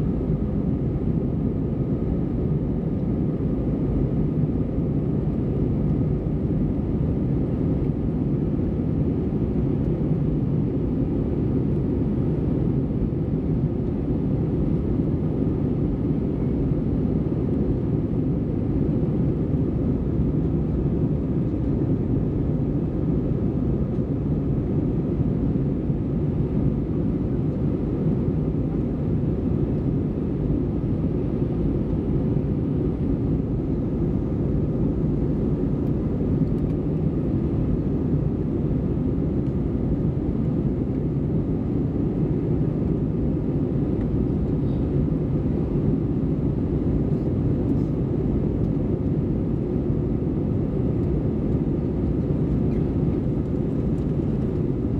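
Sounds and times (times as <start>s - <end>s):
jet engine and airflow rumble: 0.0s - 54.9s
faint hum: 18.6s - 54.9s.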